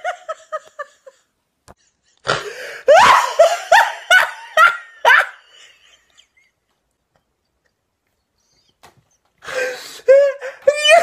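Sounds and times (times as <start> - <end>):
person laughing hard: 0.0 - 1.3, 1.9 - 6.7, 9.5 - 11.0.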